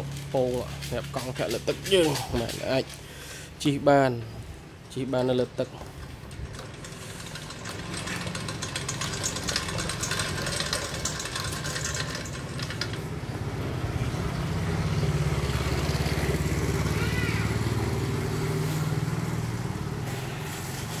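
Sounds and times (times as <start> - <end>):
mechanical rattle and whir: 5.2 - 14.7.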